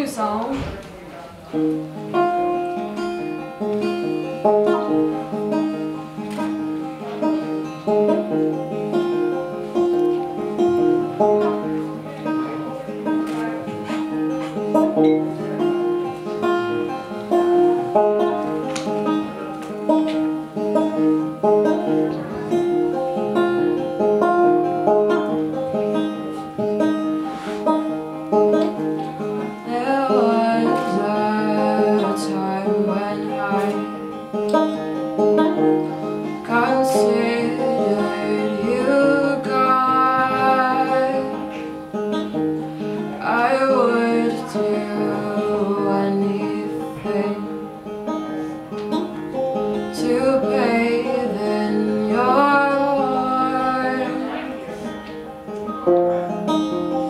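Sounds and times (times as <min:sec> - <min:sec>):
solo banjo picking: 0:01.4 - 0:57.0.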